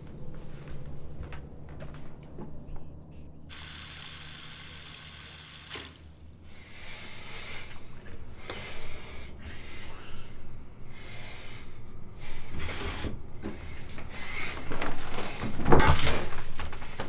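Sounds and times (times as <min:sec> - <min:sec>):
low steady hum: 0:00.0 - 0:17.0
man breathing hard: 0:06.4 - 0:12.6.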